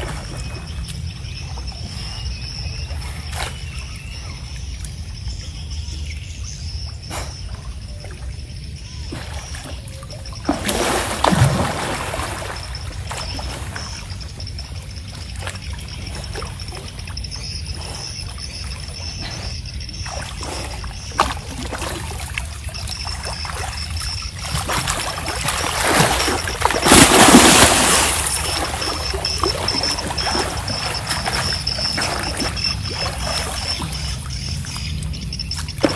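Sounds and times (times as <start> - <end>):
water splashing from wading: 9.0 - 19.2, 19.8 - 35.9.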